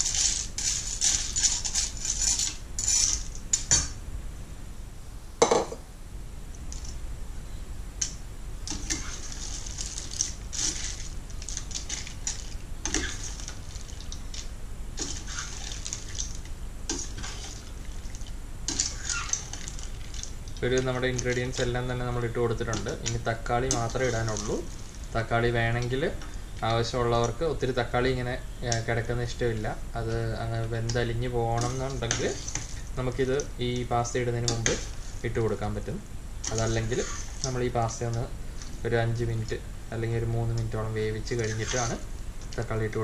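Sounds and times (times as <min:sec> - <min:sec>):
pasta scraping in a steel pan: 0:00.0 - 0:03.9, 0:08.7 - 0:18.1, 0:18.7 - 0:25.2, 0:30.8 - 0:33.4, 0:34.3 - 0:35.3, 0:36.4 - 0:38.8, 0:41.2 - 0:42.1.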